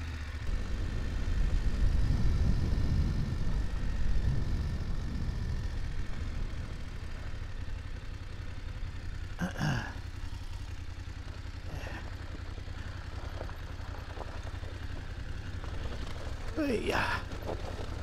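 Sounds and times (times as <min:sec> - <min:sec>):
motorcycle engine running: 0:00.0 - 0:18.0
tyres rolling on gravel: 0:06.0 - 0:18.0.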